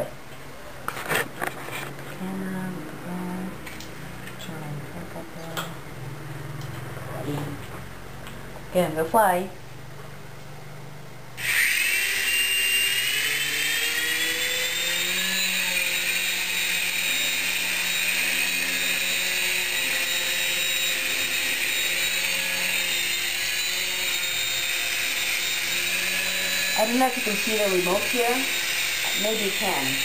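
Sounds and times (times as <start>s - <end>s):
toy helicopter motors whining: 11.4s - 30.0s.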